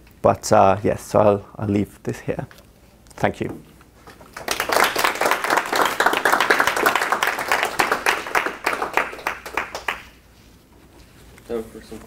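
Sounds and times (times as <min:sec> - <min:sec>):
audience clapping: 0:04.2 - 0:10.3.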